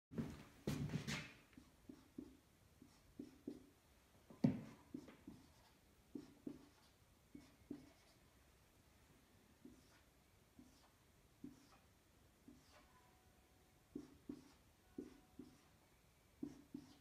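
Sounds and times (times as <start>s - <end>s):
marker pen scratching strokes: 1.2s - 3.7s, 4.5s - 8.2s, 9.6s - 13.0s, 13.9s - 15.7s, 16.4s - 17.0s.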